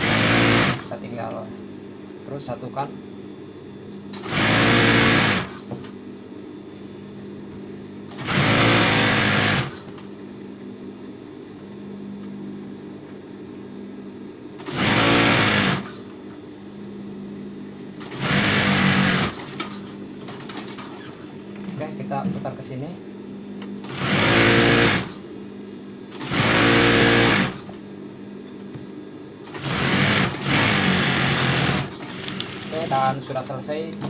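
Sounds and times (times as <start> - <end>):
sewing machine stitching: 0.0 - 0.8, 8.1 - 9.8, 14.6 - 15.9, 18.0 - 21.2, 23.9 - 25.1, 26.2 - 27.6, 29.5 - 33.1
steady low hum: 0.1 - 34.0.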